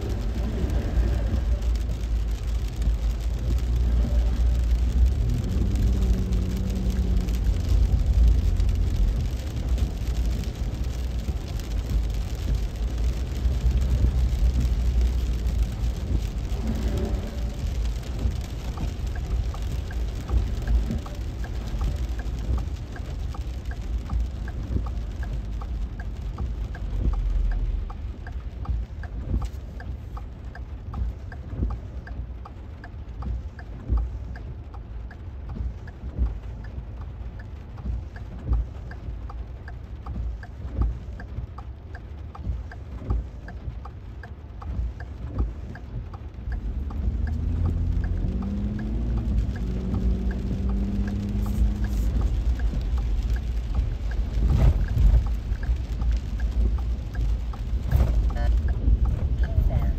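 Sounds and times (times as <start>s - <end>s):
engine speeding up: 0.0s - 21.2s, 45.9s - 59.9s
heavy rain on vehicle roof: 0.0s - 59.9s
light even ticking: 0.0s - 59.9s.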